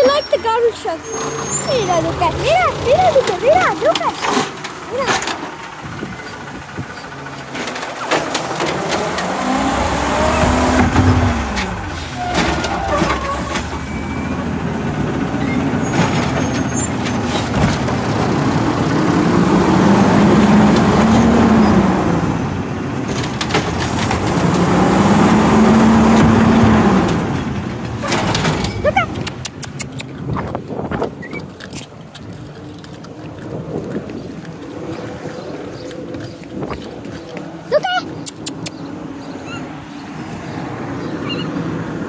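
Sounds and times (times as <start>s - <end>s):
garbage truck engine revving: 0.0s - 30.4s
knocks and clatter of bins: 3.1s - 5.6s, 10.4s - 13.8s, 26.0s - 29.0s.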